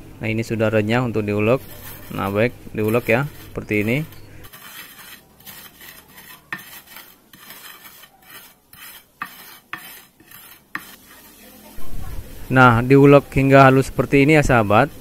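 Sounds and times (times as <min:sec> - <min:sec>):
pestle grinding in clay mortar: 0:01.4 - 0:11.4.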